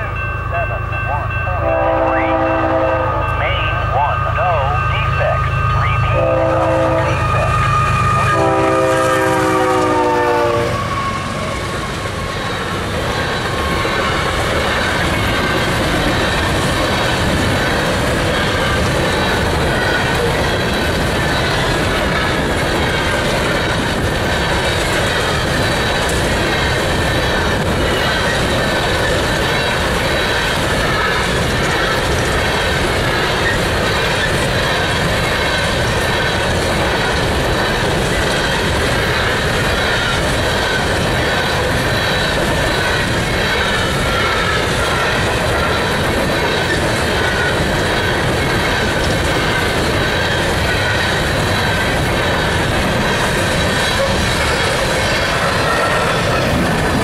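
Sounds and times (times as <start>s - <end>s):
freight train wheels rattling: 5.5s - 57.0s.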